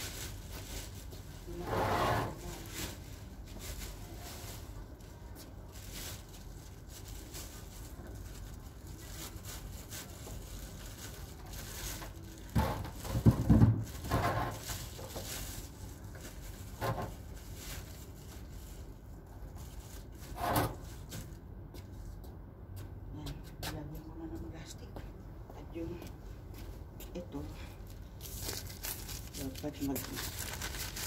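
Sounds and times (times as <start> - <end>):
plastic bin rubbing and knocking: 12.5 - 15.3.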